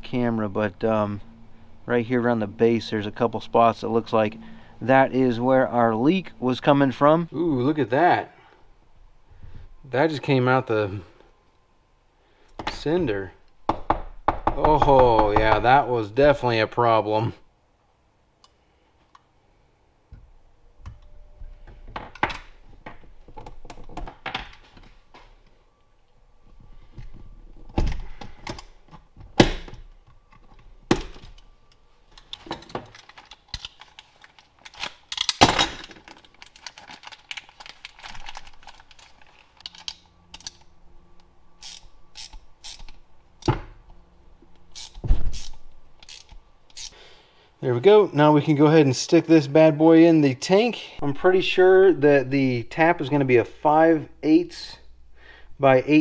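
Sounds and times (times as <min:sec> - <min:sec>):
ratcheting wrench clicking: 0:41.6 - 0:43.0, 0:44.7 - 0:46.9.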